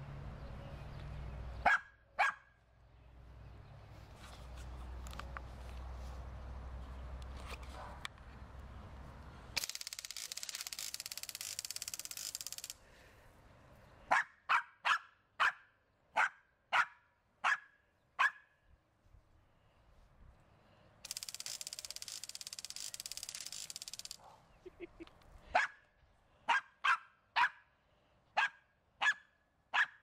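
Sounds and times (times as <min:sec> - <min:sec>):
small dog barking: 0:01.6 - 0:02.5, 0:14.1 - 0:18.5, 0:25.6 - 0:25.8, 0:26.5 - 0:27.6, 0:28.4 - 0:30.0
lawn sprinkler hissing spray: 0:21.0 - 0:24.2.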